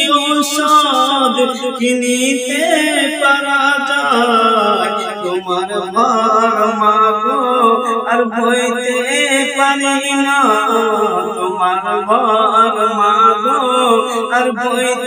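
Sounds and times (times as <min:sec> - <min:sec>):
man singing devotional song: 0:00.0 - 0:15.0.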